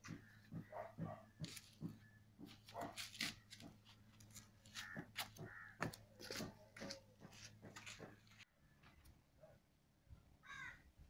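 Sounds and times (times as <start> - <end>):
crows cawing: 4.7 - 6.5, 10.4 - 10.9.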